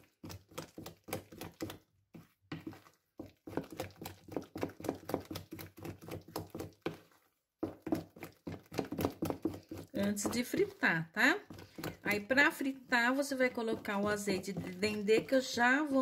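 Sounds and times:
wooden spoon beating batter: 0.0 - 16.0.

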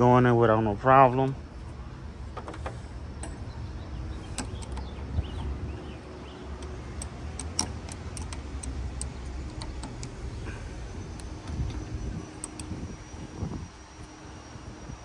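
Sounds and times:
ratchet wrench clicking: 4.4 - 4.9, 6.6 - 10.3, 11.0 - 13.0.

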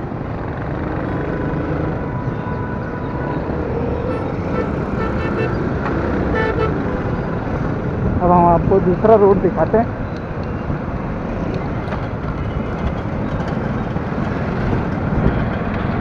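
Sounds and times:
motorcycle engine and road noise: 0.0 - 16.0
street traffic: 0.0 - 16.0
vehicle horn toots: 4.1 - 5.7, 6.3 - 6.9.

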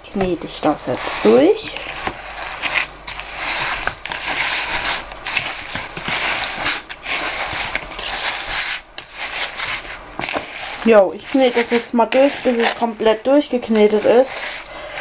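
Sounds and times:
hand kneading minced meat: 0.1 - 15.0.

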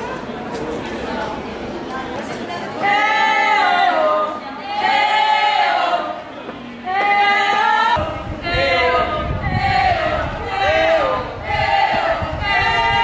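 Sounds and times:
choir singing long sliding notes: 2.8 - 13.0.

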